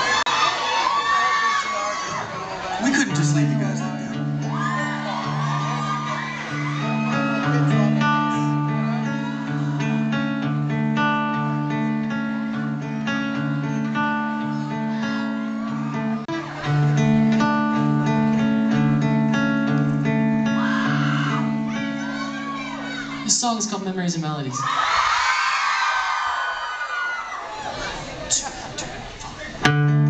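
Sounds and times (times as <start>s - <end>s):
acoustic guitars picking chords: 2.0s - 26.2s, 27.8s - 30.0s.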